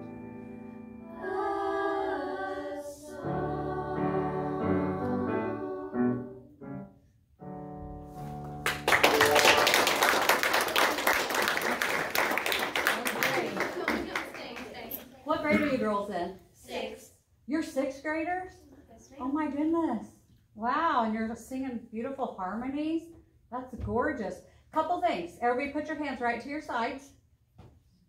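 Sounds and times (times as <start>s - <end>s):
piano accompaniment: 0.0s - 1.2s, 3.2s - 10.7s
girls choir singing in harmony: 0.7s - 6.7s
audience applauding: 8.5s - 14.8s.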